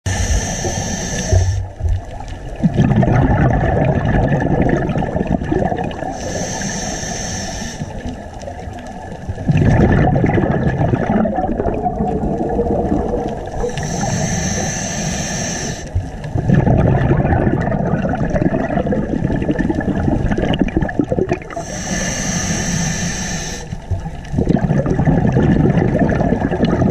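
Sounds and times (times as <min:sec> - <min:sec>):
regulator inhalation hiss: 0:00.1 - 0:01.7, 0:06.2 - 0:08.1, 0:13.5 - 0:16.0, 0:21.5 - 0:23.8
gurgling exhaust bubbles: 0:00.1 - 0:06.4, 0:09.0 - 0:14.3, 0:15.9 - 0:22.6, 0:23.7 - 0:26.9.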